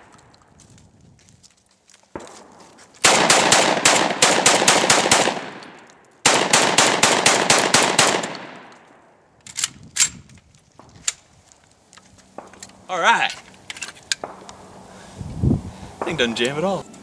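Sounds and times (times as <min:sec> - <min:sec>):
shotgun fired rapidly: 0:03.0 - 0:05.6, 0:06.2 - 0:08.5.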